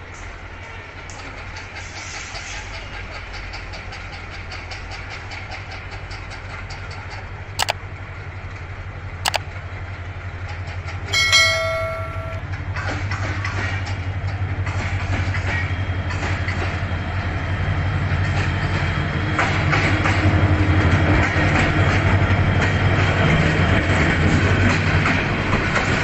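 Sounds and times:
diesel locomotive engine hum: 0.0 - 26.0
sharp clicks: 11.5 - 12.4.

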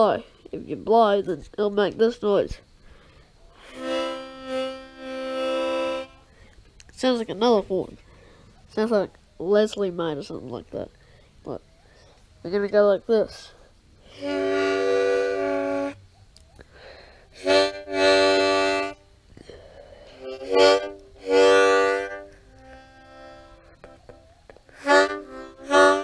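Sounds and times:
harmonica horn-style blasts: 3.6 - 6.4, 14.0 - 16.0, 17.3 - 26.0.

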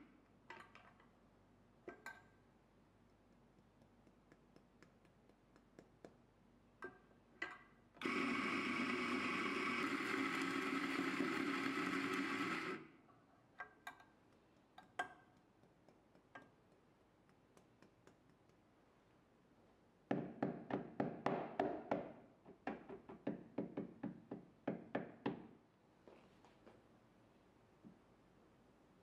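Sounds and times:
espresso grinder grinding beans: 8.0 - 12.8.

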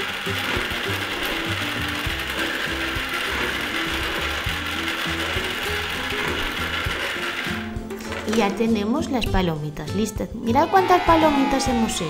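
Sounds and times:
toy microwave motor whirring: 0.0 - 8.8, 10.5 - 12.0.

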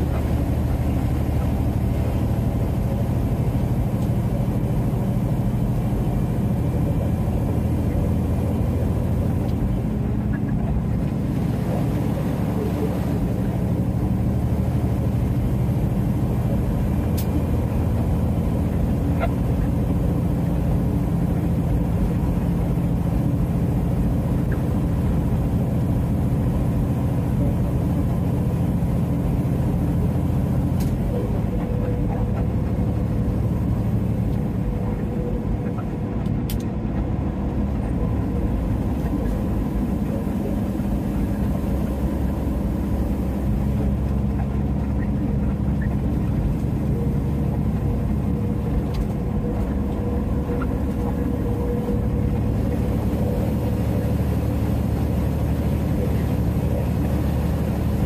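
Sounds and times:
diesel truck engine running: 0.0 - 58.0
tyre and road noise: 0.0 - 58.0.

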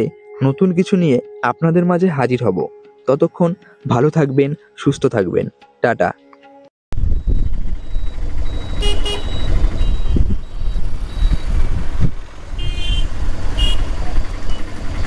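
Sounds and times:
vehicle rumble on road: 7.0 - 15.0
horn toots: 8.7 - 10.3, 12.5 - 14.7.

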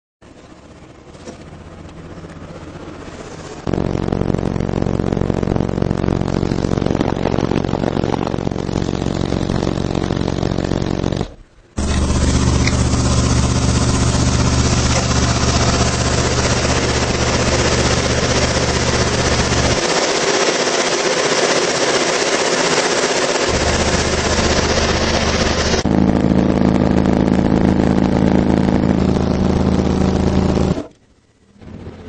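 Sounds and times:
subwoofer bass buzz: 3.6 - 20.0, 23.4 - 30.9.

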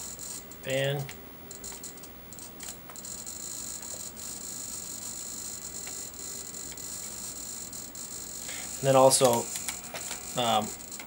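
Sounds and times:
gimbal motors high-pitched hiss: 3.1 - 11.0.

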